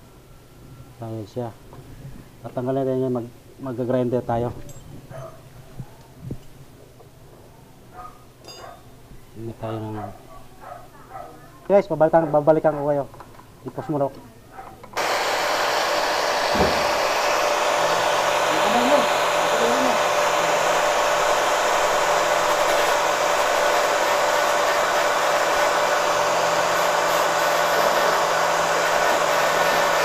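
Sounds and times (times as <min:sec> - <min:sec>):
angle grinder grinding metal: 0:15.0 - 0:30.0.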